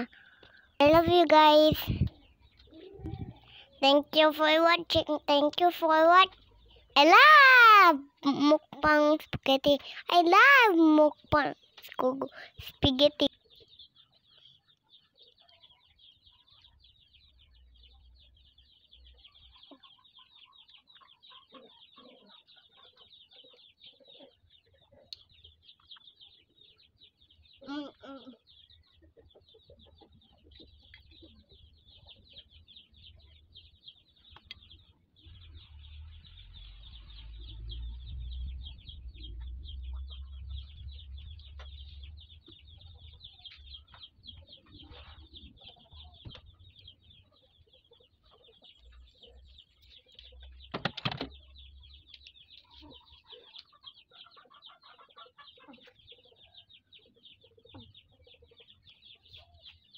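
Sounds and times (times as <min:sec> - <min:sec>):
chickens peeping and chirping: 0:00.0 - 0:59.9
low rumble: 0:35.4 - 0:43.8.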